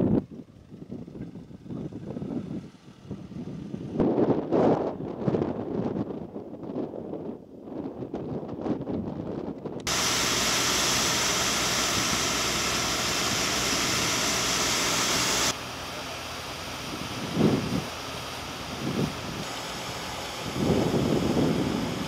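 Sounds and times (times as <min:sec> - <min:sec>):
hose nozzle spraying water: 0:09.9 - 0:22.0
low gust of wind: 0:09.9 - 0:22.0.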